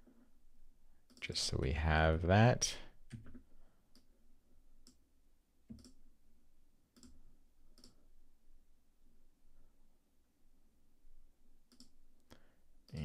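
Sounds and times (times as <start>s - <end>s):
faint computer mouse clicks: 5.7s - 6.0s, 11.7s - 12.0s.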